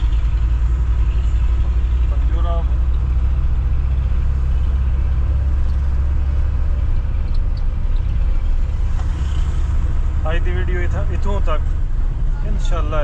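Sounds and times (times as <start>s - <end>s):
diesel truck engine rumbling: 0.0s - 13.0s
road noise: 0.0s - 13.0s.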